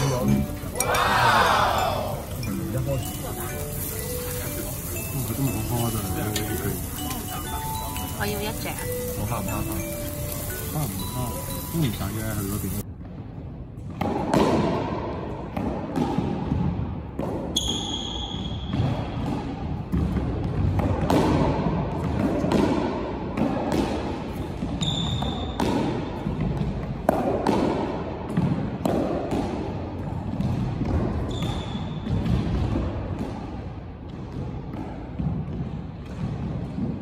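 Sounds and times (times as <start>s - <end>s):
racket hitting squash ball: 13.8s - 37.0s
sneakers squeaking on wooden floor: 17.5s - 19.2s, 24.7s - 25.6s, 31.0s - 32.5s.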